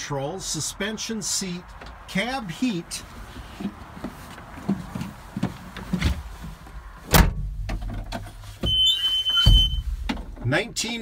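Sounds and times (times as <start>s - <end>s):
knocks and clunks climbing in: 3.1s - 11.0s
cab door thump: 7.1s - 7.8s, 9.4s - 10.3s.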